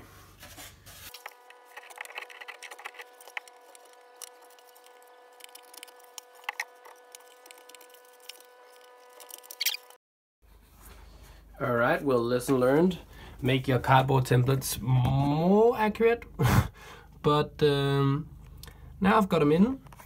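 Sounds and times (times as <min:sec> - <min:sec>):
chisel scratching wood: 0:01.3 - 0:09.8.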